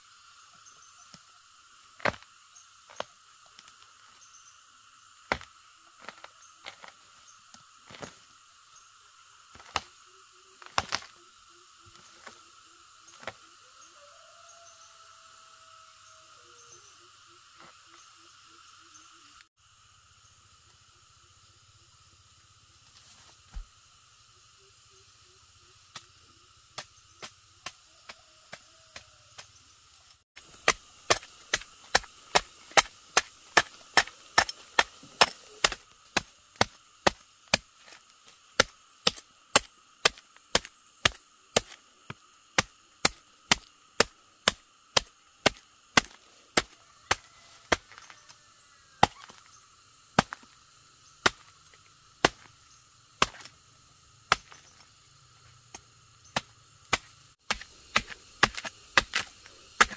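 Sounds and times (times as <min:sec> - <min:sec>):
machete chopping: 0:02.0 - 0:02.3, 0:05.3 - 0:06.9, 0:09.6 - 0:09.9, 0:10.6 - 0:11.1, 0:30.4 - 0:38.0, 0:38.6 - 0:48.1, 0:49.0 - 0:49.4, 0:50.2 - 0:50.6, 0:51.2 - 0:51.5, 0:52.2 - 0:52.5, 0:53.2 - 0:53.6, 0:54.3 - 0:54.8, 0:55.7 - 0:59.9.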